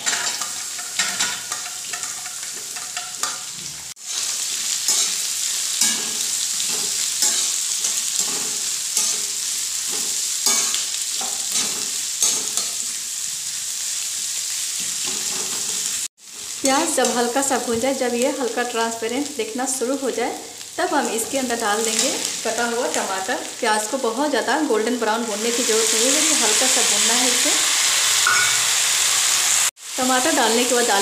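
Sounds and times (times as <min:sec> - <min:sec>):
metal spatula scraping a pan: 0:00.0 - 0:13.0
onions sizzling in oil: 0:00.0 - 0:31.0.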